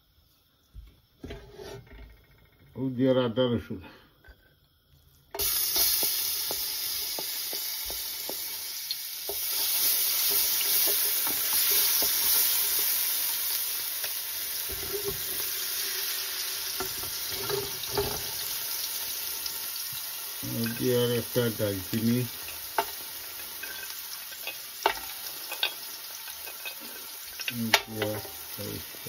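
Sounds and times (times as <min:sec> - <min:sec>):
wooden spoon scraping a pot: 0:01.2 - 0:01.9, 0:14.6 - 0:15.6, 0:16.7 - 0:18.5
ginger and garlic sizzling in oil: 0:05.1 - 0:29.0.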